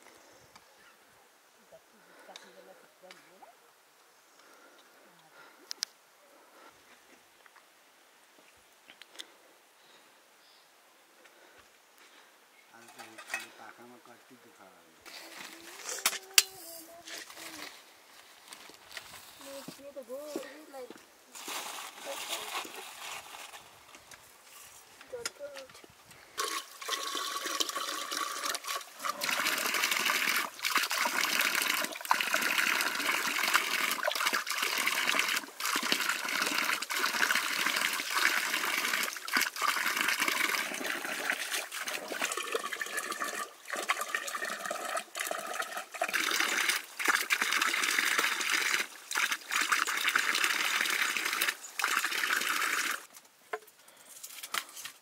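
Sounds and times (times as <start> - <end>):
water running and splashing: 26.4 - 53.1.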